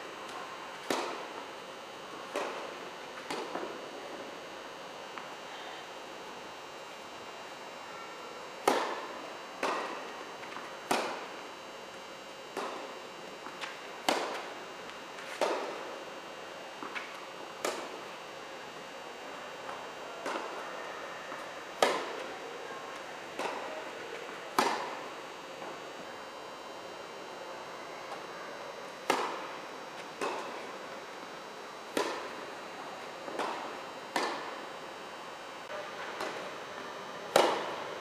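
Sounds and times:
racquets striking tennis ball: 0.7 - 1.3, 8.6 - 11.3, 12.6 - 14.5, 16.8 - 18.0, 21.7 - 22.2, 23.4 - 23.6, 24.5 - 25.0, 29.0 - 29.5, 30.2 - 30.7, 31.9 - 32.5, 33.3 - 34.6, 37.3 - 37.8.

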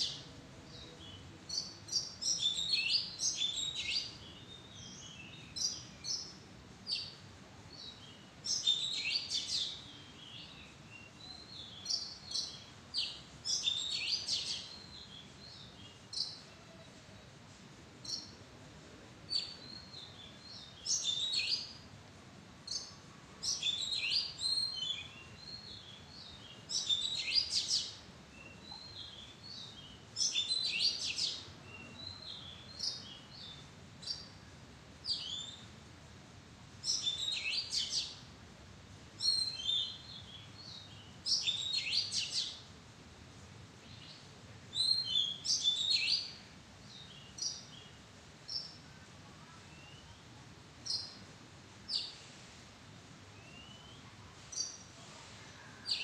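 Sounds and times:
bird singing whistled phrases: 49.7 - 50.2, 53.4 - 54.0.

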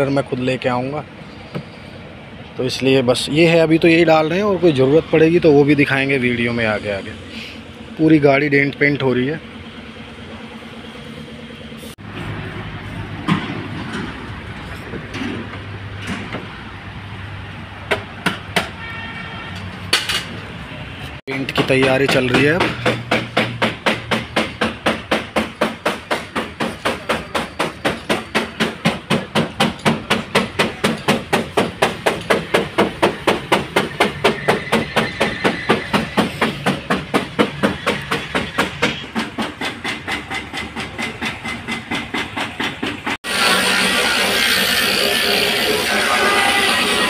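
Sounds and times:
rapid regular knocking: 21.3 - 43.2.

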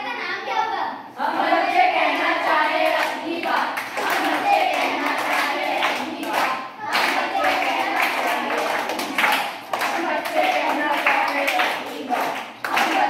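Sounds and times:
children singing together: 1.2 - 13.0
hand claps: 2.9 - 13.0.

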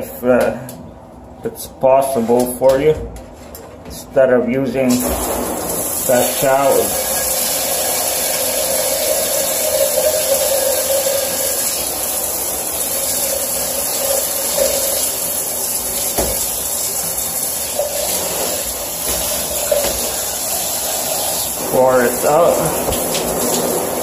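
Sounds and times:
shower water spraying into bathtub: 5.0 - 24.0.

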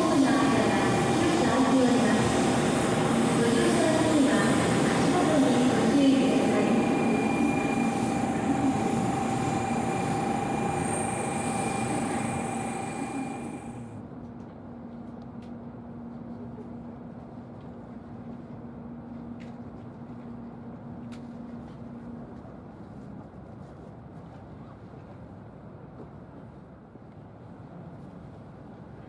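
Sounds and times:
train noise with high whines: 0.0 - 29.0
low steady cabin hum: 6.0 - 29.0.

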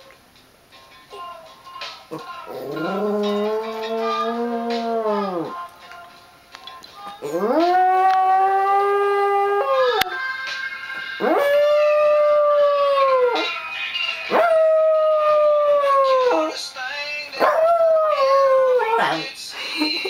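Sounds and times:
dog howling: 2.5 - 5.5, 7.2 - 10.2, 11.2 - 13.5, 14.3 - 16.6, 17.4 - 19.3.

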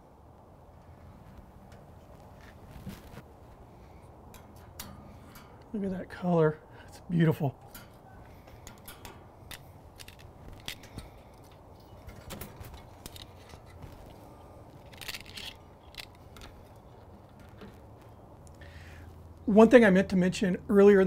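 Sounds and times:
metal tongs on grill grate: 1.6 - 6.2, 6.8 - 18.6.

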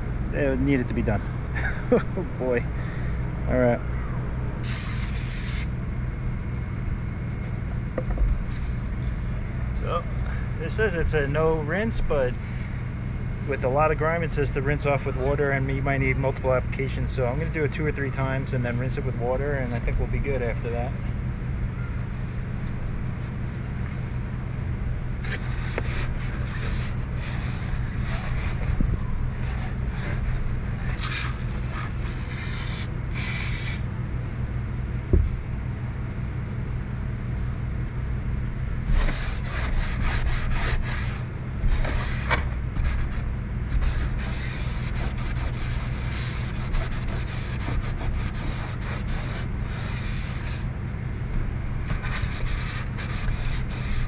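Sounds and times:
steady low hum: 0.0 - 54.0
cloth scrubbing sheet metal: 38.8 - 50.7, 52.0 - 54.0.

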